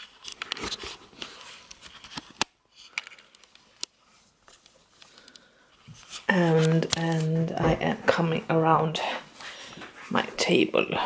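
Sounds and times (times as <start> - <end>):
camera handling clicks and rustles: 0.0 - 6.2.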